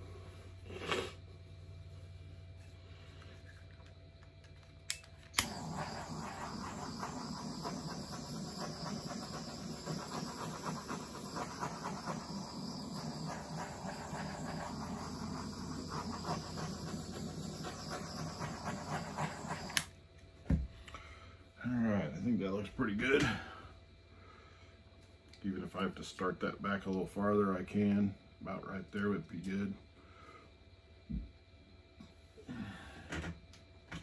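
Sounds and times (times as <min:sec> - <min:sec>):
handheld electric blower running: 0:05.4 - 0:19.9.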